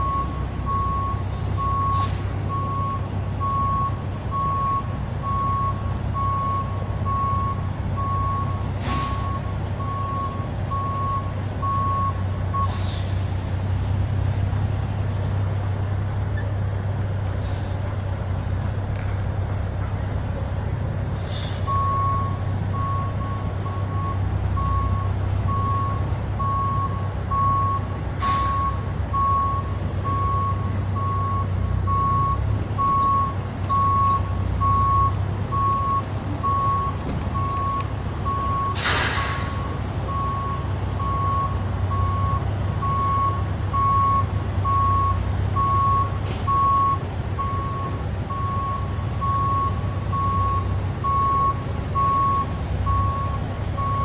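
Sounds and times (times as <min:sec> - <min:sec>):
diesel truck engine running: 0:00.0 - 0:54.0
air brake hisses: 0:01.9 - 0:02.3, 0:08.8 - 0:09.3, 0:12.6 - 0:13.4, 0:17.4 - 0:17.8, 0:21.1 - 0:21.8, 0:28.2 - 0:28.8, 0:38.7 - 0:39.7
backup alarm beeping: 0:40.1 - 0:54.0.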